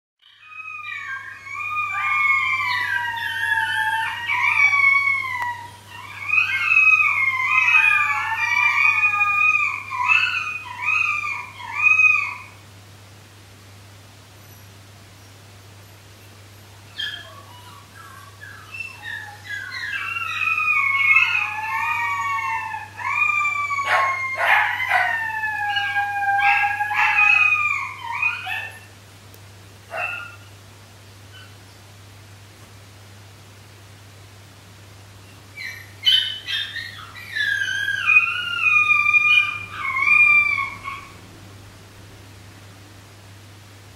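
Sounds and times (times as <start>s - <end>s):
puppies howling: 0.2s - 12.6s, 16.9s - 28.9s, 29.9s - 30.5s, 35.6s - 41.3s
puppy yips: 0.2s - 12.6s, 16.9s - 28.9s, 29.9s - 30.5s, 35.6s - 41.2s
faint low hum: 0.2s - 43.9s.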